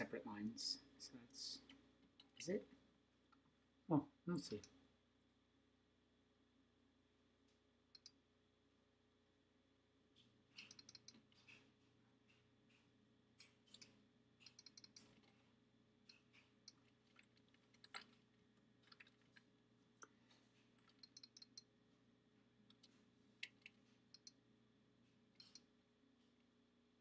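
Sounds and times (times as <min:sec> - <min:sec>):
typing on computer keyboard: 0:10.5 - 0:11.7, 0:13.4 - 0:15.5, 0:16.1 - 0:18.2, 0:18.8 - 0:19.4, 0:20.8 - 0:21.6, 0:22.7 - 0:24.3, 0:25.4 - 0:25.6.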